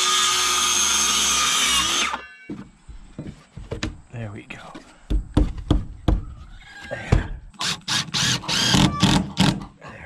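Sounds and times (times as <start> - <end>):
wooden board knocking on wall: 5.1 - 6.3
cordless drill driving screw: 7.6 - 9.6.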